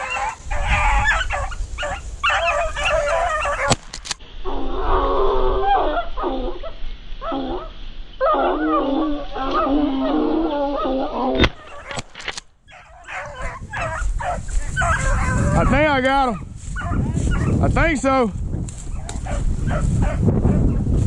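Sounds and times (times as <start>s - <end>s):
hounds baying: 0.0s - 3.8s, 5.4s - 12.0s, 12.6s - 18.1s, 18.8s - 20.9s.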